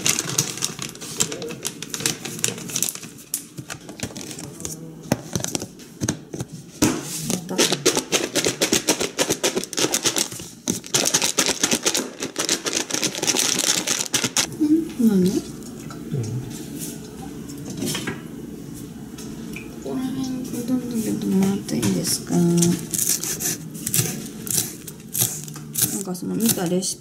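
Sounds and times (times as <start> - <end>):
food rattling in plastic tub: 0.0 - 4.5, 7.4 - 14.5
plastic bag rustling: 0.0 - 6.4, 7.2 - 14.5, 22.4 - 26.6.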